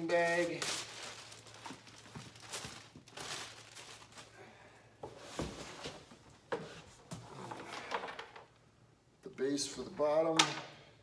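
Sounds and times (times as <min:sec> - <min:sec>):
plastic wrap rustling: 0:00.0 - 0:04.6.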